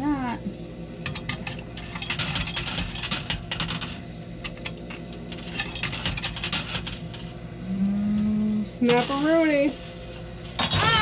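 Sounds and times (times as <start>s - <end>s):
low steady hum: 0.0s - 11.0s
coins clinking: 1.2s - 4.0s, 5.3s - 7.4s, 8.8s - 11.0s.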